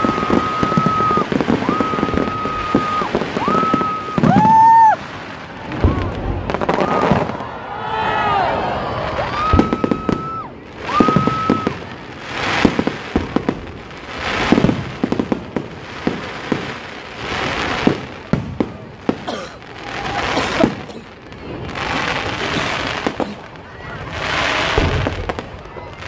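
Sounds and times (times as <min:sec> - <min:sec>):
fireworks bangs and crackling: 0:00.0 - 0:26.0.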